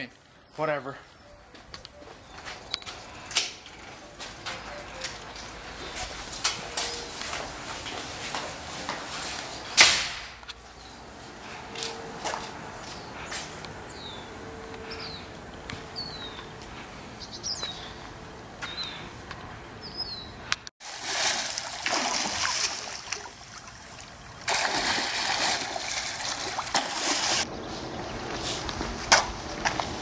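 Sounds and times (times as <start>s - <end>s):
small birds chirping: 12.8s - 15.3s, 15.9s - 20.6s
water splashing in a pool: 20.8s - 27.5s.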